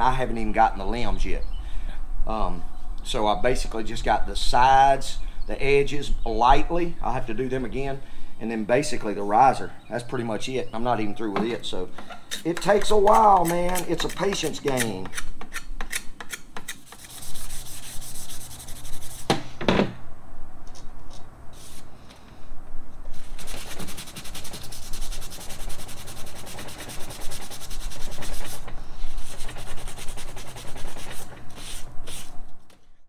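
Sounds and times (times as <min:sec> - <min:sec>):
hand rubbing on wood: 0:16.7 - 0:19.3, 0:23.1 - 0:32.3.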